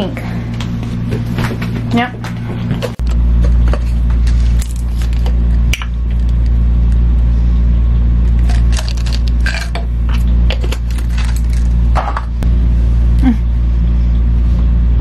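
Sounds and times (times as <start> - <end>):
loud steady low hum: 0.0 - 15.0
capsules rattling in plastic bottle: 8.4 - 9.8, 10.6 - 11.7.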